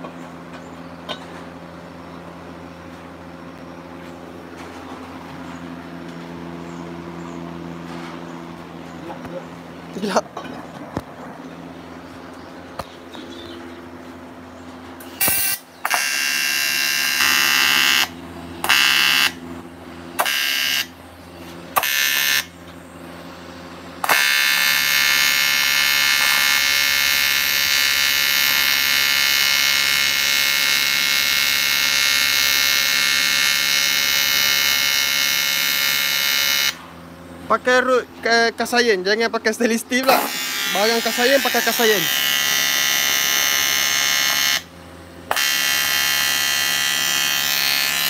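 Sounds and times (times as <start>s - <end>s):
welding machine hum: 14.8s - 37.6s, 39.9s - 48.0s
welding arc buzzing: 15.0s - 22.6s, 24.0s - 37.0s, 39.7s - 48.0s.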